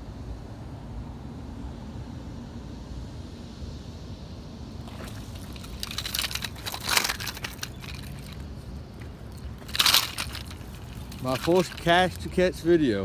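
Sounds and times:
steady low rumble: 0.0s - 13.0s
dry grass crackling and rustling: 4.8s - 12.5s.

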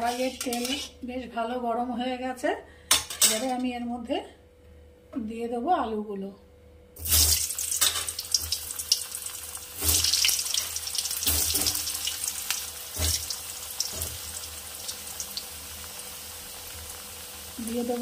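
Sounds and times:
potatoes sizzling in hot oil: 7.0s - 18.0s.

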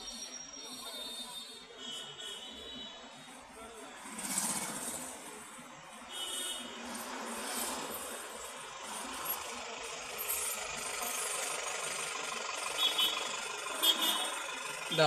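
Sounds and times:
vehicle engines idling: 3.1s - 15.0s.

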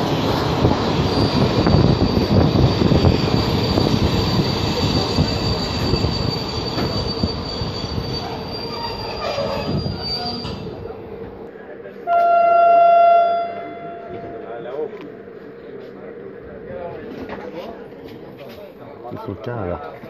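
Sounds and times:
train wheels rumbling on rails: 0.0s - 12.4s
high-pitched brake squeal: 1.0s - 10.8s, 12.1s - 14.4s.

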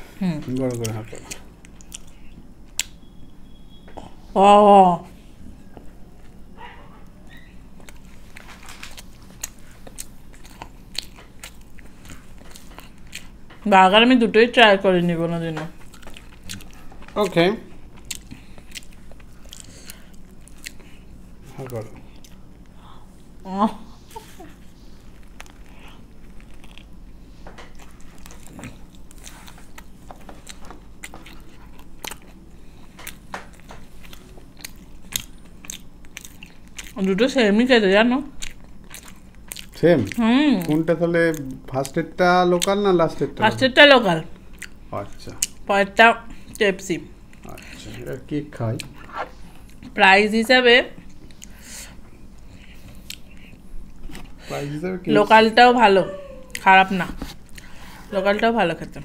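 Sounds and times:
person chewing food: 0.5s - 3.0s, 7.8s - 13.6s, 15.8s - 23.4s, 24.0s - 37.1s, 38.3s - 42.0s, 44.3s - 45.7s, 47.2s - 48.1s, 48.7s - 50.0s, 51.0s - 55.2s, 56.4s - 58.4s.

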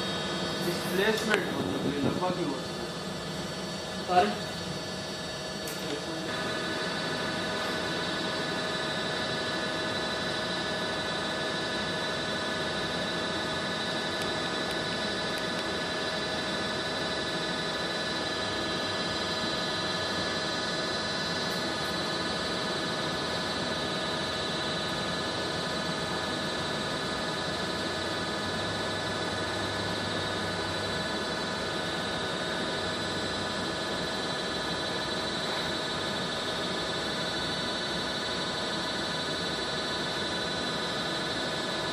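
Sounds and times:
testing machine humming: 0.0s - 25.1s.

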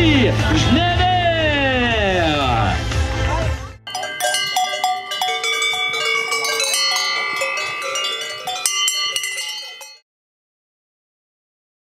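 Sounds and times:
cowbells clanging: 3.9s - 10.0s.

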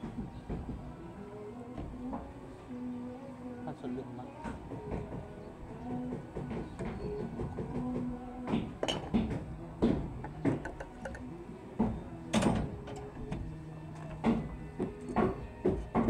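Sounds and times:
plastic conduit knocking on steel mesh: 6.4s - 12.7s.

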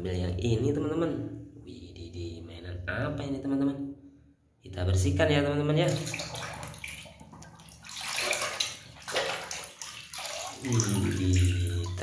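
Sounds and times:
water sloshing in basin: 5.8s - 12.0s.

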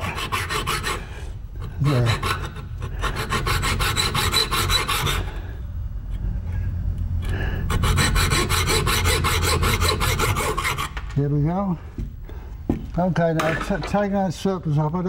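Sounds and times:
hacksaw cutting steel: 0.0s - 1.0s, 1.8s - 5.4s, 7.7s - 11.0s.

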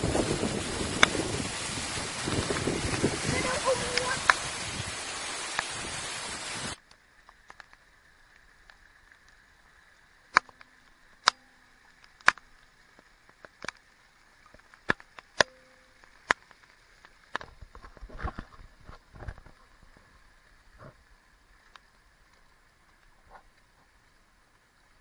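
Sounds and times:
waterfall rushing: 0.0s - 6.8s.

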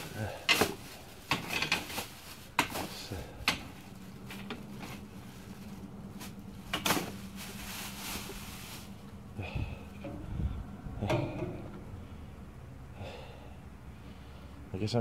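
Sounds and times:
plastic trash bags rustling: 0.0s - 12.0s.

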